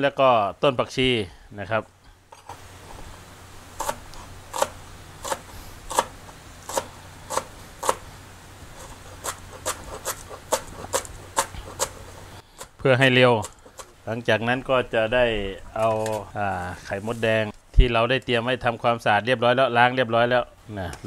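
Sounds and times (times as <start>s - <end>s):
cleaver chopping on plastic board: 6.7s - 8.0s.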